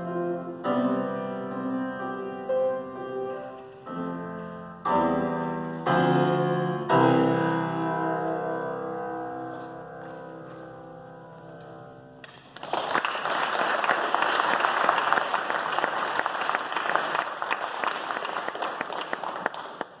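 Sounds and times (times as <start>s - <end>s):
piano chord: 0.0s - 12.2s
audience clapping: 12.2s - 20.0s.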